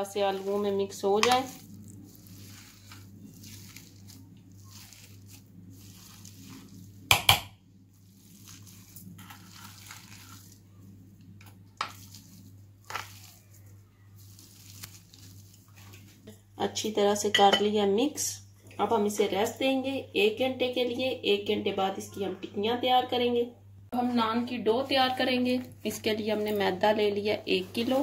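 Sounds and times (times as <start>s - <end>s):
potato masher squishing potatoes: 0.0s - 16.3s.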